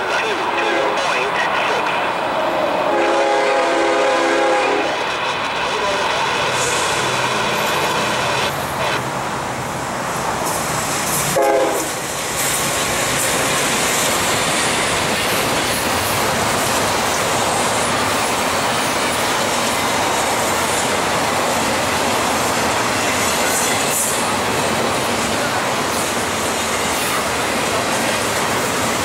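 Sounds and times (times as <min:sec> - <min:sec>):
train cars rumbling: 0:00.0 - 0:29.0
train horn: 0:00.6 - 0:01.1, 0:02.9 - 0:05.0, 0:11.3 - 0:12.0
train wheel clatter: 0:10.4 - 0:29.0.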